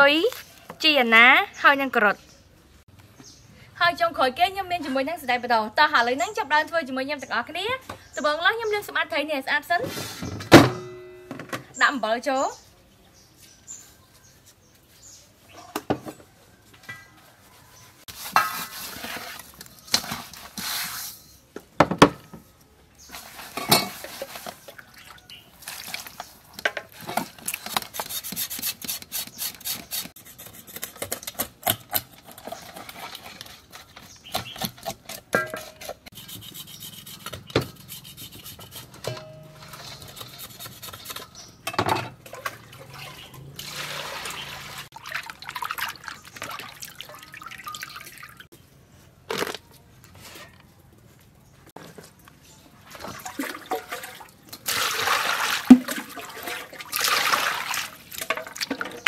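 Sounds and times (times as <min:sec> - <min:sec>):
salt scraping on bowl: 0:35.4 - 0:39.0, 0:39.6 - 0:41.6.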